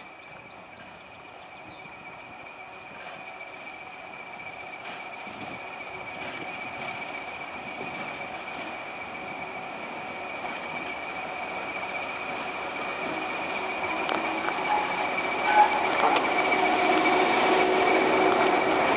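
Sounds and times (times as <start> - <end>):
diesel locomotive engine: 0.0 - 18.9
high whistle: 13.6 - 18.2.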